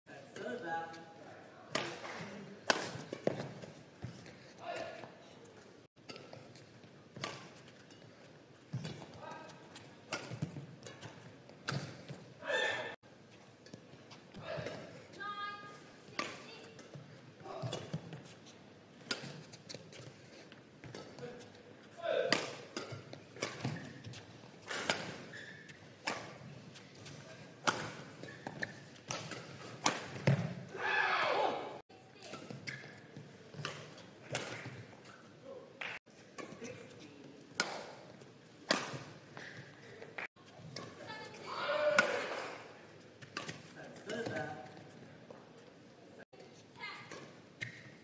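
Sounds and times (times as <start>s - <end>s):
rackets striking shuttlecock: 1.7s - 3.6s, 10.1s - 12.1s, 16.2s - 17.0s, 22.2s - 30.6s, 41.8s - 42.6s, 43.2s - 44.4s
racket hitting shuttlecock: 1.7s - 5.1s, 6.0s - 12.2s, 16.1s - 18.2s, 19.0s - 20.2s, 22.2s - 31.6s, 32.2s - 35.2s, 37.6s - 39.7s, 40.6s - 44.4s
court shoes squeaking: 1.7s - 30.7s, 32.0s - 35.4s, 36.0s - 45.7s, 46.4s - 48.0s
shoe squeaks on court floor: 25.2s - 25.8s.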